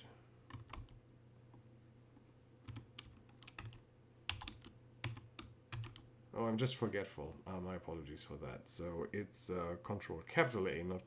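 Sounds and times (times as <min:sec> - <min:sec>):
keyboard key presses: 0:00.5 - 0:01.0, 0:02.6 - 0:06.0.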